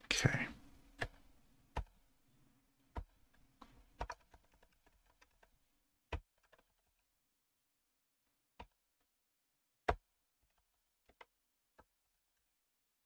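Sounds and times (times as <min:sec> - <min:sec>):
computer keyboard typing: 0:04.0 - 0:05.5.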